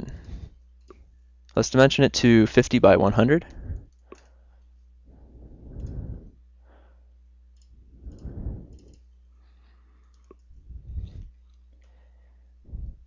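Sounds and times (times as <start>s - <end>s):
low electrical hum: 0.0s - 13.0s
computer mouse clicks: 3.9s - 4.3s, 7.5s - 9.2s, 10.0s - 10.5s
soft low puffs of noise: 5.1s - 6.4s, 7.8s - 9.0s, 10.5s - 11.4s.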